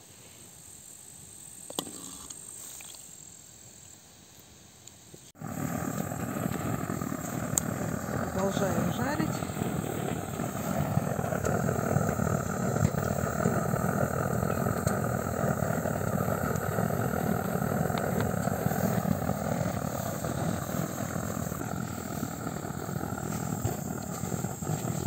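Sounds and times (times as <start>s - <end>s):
blowtorch flame rushing: 5.4s - 25.0s
mushrooms frying: 5.4s - 25.0s.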